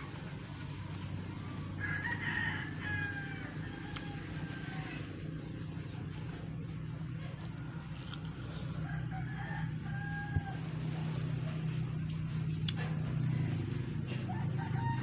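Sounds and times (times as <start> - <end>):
steady low hum: 0.0 - 15.0
rooster crowing: 1.4 - 5.4, 8.8 - 11.2, 13.2 - 15.0.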